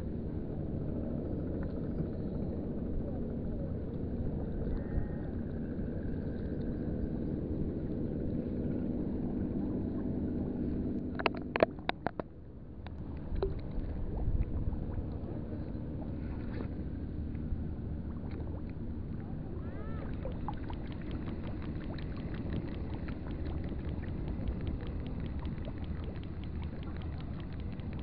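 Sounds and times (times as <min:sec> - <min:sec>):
boat engine drone: 0:00.0 - 0:28.0
sharp clicks and knocks: 0:11.1 - 0:12.3.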